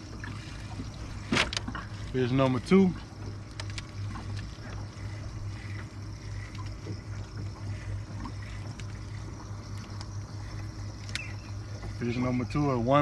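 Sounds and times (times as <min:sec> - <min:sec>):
steady low hum: 0:00.0 - 0:13.0
water lapping against boat hull: 0:00.0 - 0:13.0.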